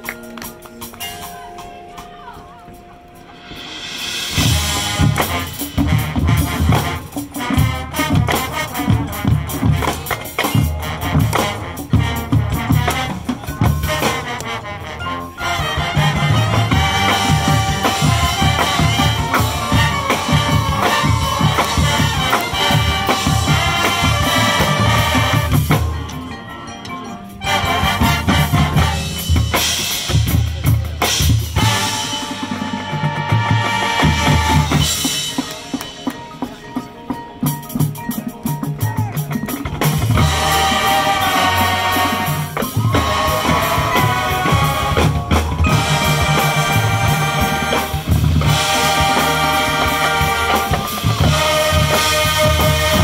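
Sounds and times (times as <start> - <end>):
marching band playing: 0.0 - 53.0.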